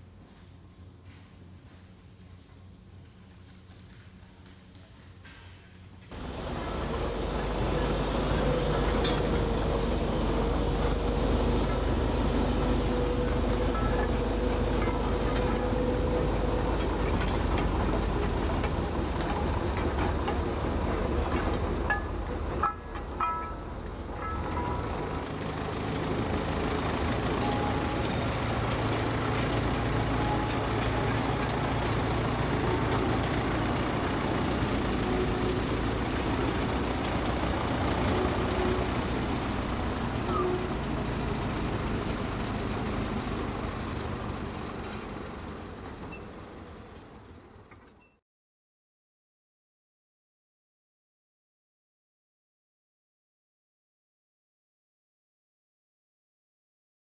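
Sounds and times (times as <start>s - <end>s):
locomotive engine rumble: 0.0s - 48.1s
wheels rolling on rails: 1.0s - 48.2s
sharp metallic clanks: 21.9s - 25.2s.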